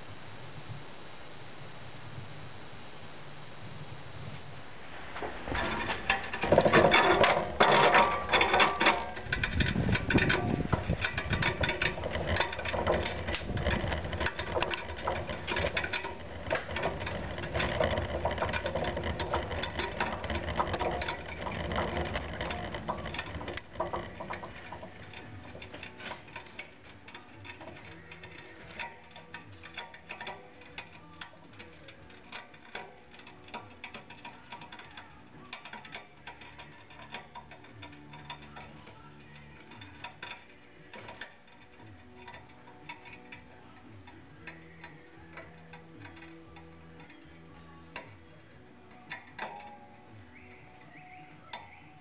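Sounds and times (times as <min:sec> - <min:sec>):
pouring shank clattering and rattling: 0:04.9 - 0:52.0.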